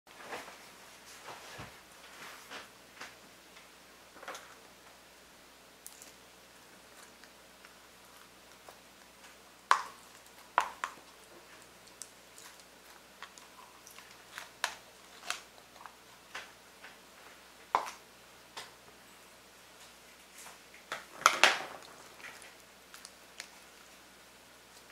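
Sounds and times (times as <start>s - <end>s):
slime squelching and popping: 8.2s - 15.5s.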